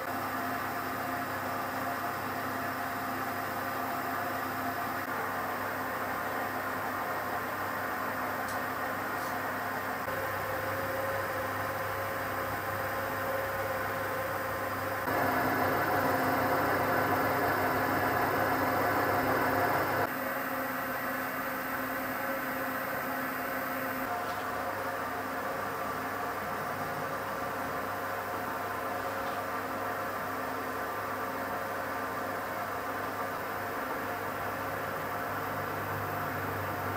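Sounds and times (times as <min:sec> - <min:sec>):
steady mechanical hum: 0:00.0 - 0:36.9.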